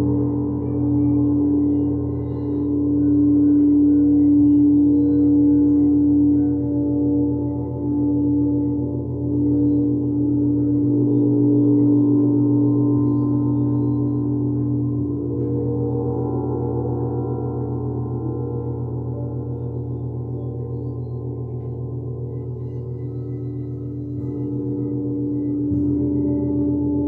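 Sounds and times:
singing bowls ringing: 0.0 - 27.0.

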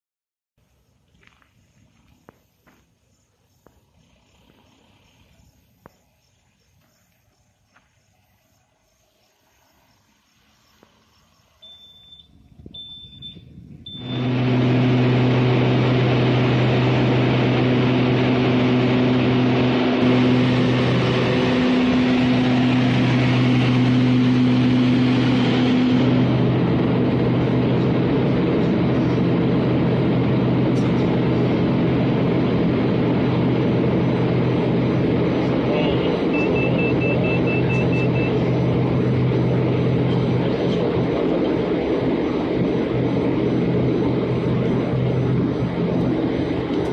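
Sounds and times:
low propeller hum: 8.6 - 46.9
short high beeps: 11.6 - 14.2, 36.3 - 38.4
aircraft cabin rush: 13.7 - 46.9.

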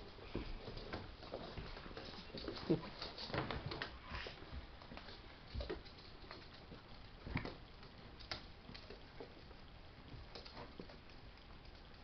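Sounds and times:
paws tapping on wooden floor: 0.0 - 12.0.

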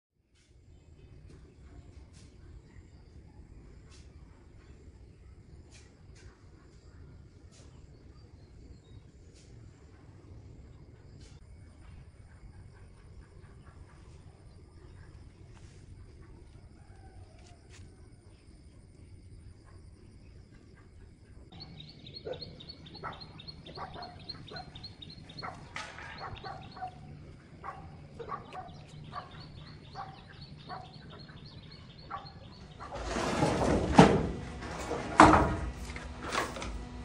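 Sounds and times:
bird-like calls: 21.5 - 33.0
bricks and mortar scraping: 32.7 - 36.2.

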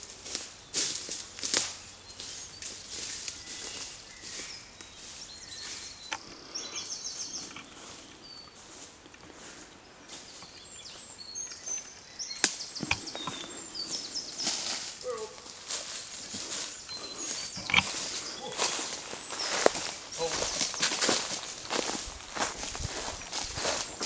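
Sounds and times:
footsteps crunching dry leaves: 0.0 - 6.0, 13.8 - 24.0
small birds chirping: 0.1 - 24.0.

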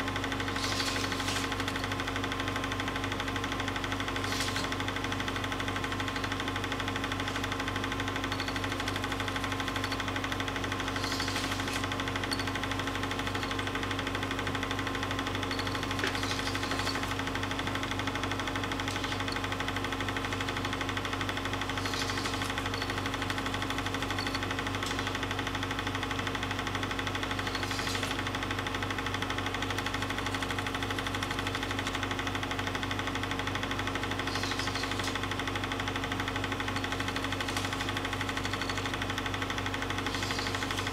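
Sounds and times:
film projector whirring and clattering: 0.0 - 40.9
faint brief squeak: 34.3 - 35.1.

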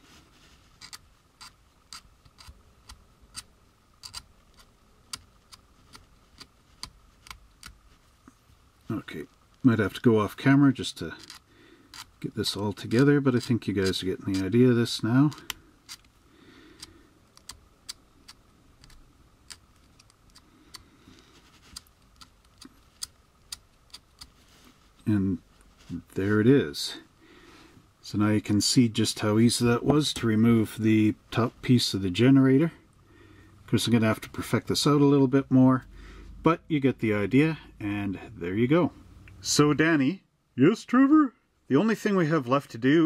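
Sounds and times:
knife shaving plastic clicks: 0.8 - 7.8, 11.2 - 12.2, 12.8 - 14.5, 15.2 - 16.1, 16.8 - 20.9.

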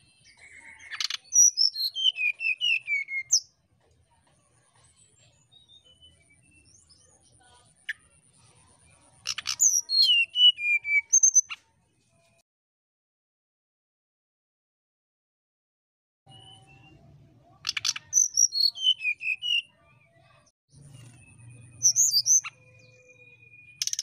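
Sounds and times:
bird whistled song: 0.0 - 3.5, 5.4 - 7.2, 9.3 - 11.6, 16.3 - 19.8, 20.8 - 24.0.

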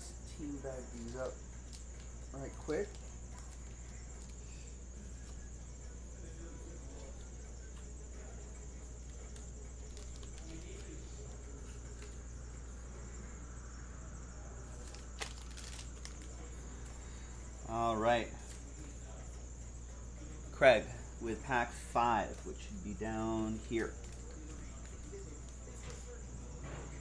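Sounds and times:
low electrical hum: 0.0 - 27.0
cards sliding into plastic bags: 14.7 - 16.4.

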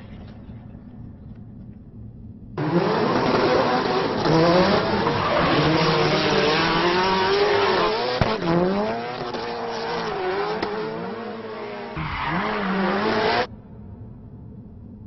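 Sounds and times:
car engine revving: 2.6 - 13.5.

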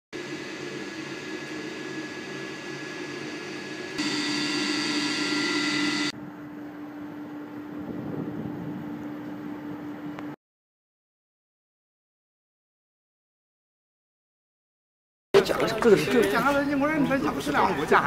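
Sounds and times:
industrial machinery whirring: 0.2 - 6.2
machine whine: 0.2 - 7.9.

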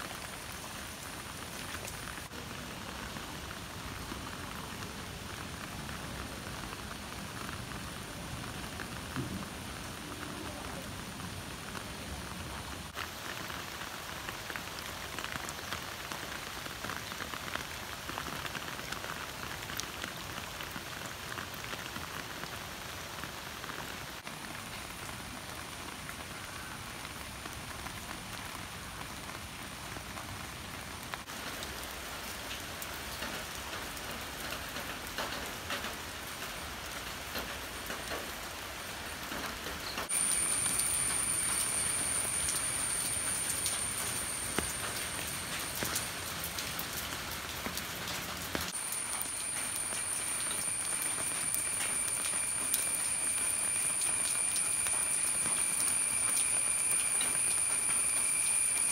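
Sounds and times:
rain on leaves and puddle: 0.0 - 58.9
high-pitched tone: 40.1 - 45.9, 48.8 - 58.9.

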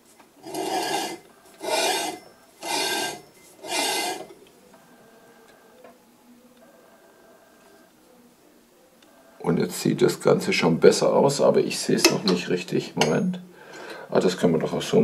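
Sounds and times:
blade scraping grinding wheel: 0.4 - 4.4.

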